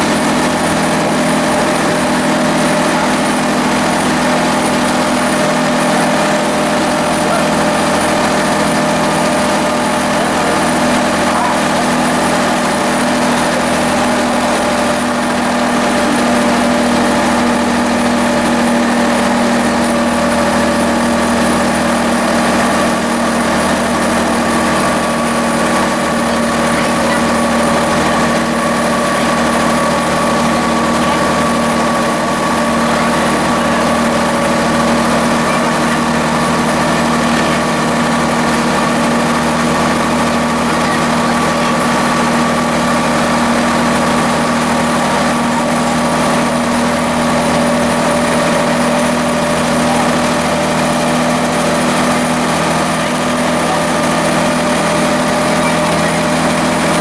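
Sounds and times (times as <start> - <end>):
diesel engine droning: 0.0 - 57.0.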